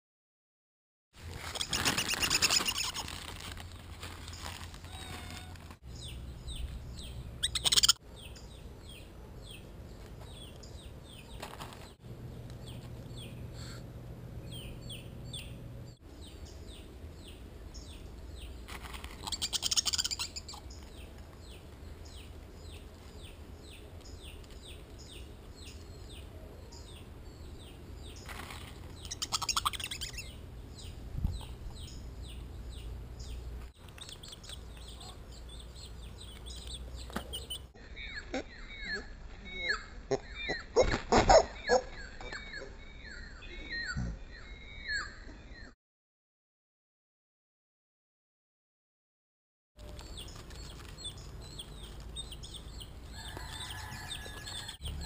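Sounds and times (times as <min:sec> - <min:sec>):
rustling bursts: 0:01.2 - 0:05.8
bird chirping: 0:03.7 - 0:13.8, 0:14.4 - 0:45.8, 0:49.8 - 0:55.0.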